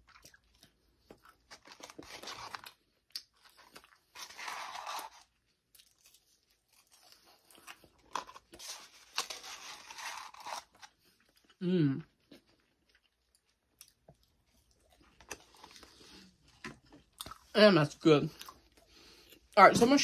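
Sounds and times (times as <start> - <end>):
chewing and crunching: 0.0 - 17.6, 18.3 - 19.8.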